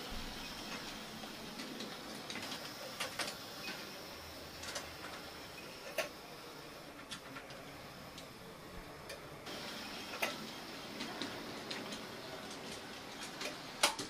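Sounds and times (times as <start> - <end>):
model tram hiss: 0.0 - 14.0
wheels clicking over rail joints: 9.1 - 14.0.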